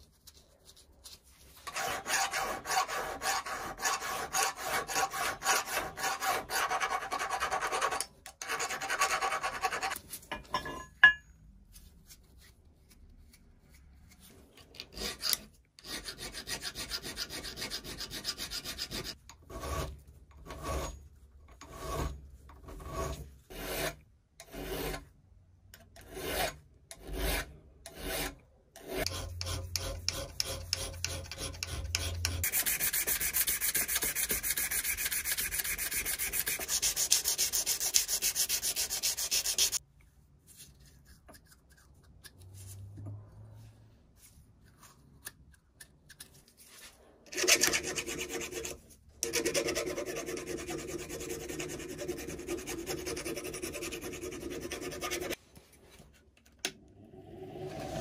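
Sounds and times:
file rasping on metal: 0:01.6 - 0:10.0, 0:14.9 - 0:21.0, 0:21.6 - 0:25.1, 0:26.0 - 0:39.8, 0:47.3 - 0:55.4.

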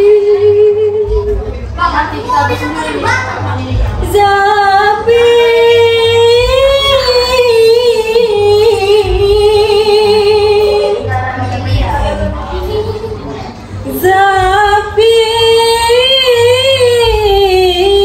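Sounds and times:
women singing long note: 0:04.0 - 0:18.0.

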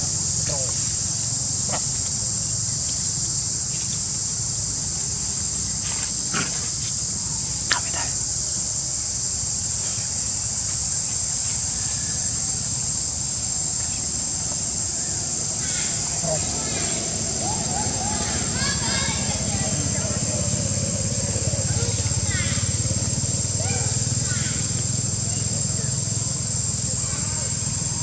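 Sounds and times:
insects droning: 0:00.0 - 0:28.0.

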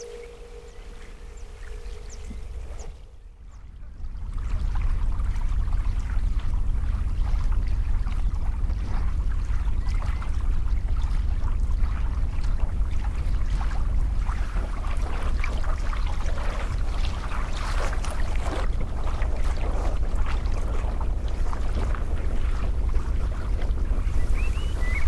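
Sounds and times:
heavy low rumble: 0:00.0 - 0:03.3.

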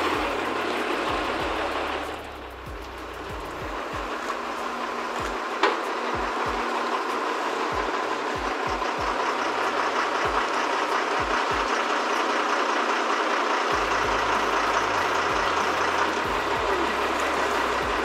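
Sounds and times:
deeper rumble: 0:00.0 - 0:05.5, 0:13.7 - 0:18.0
crane engine droning: 0:00.0 - 0:18.0.

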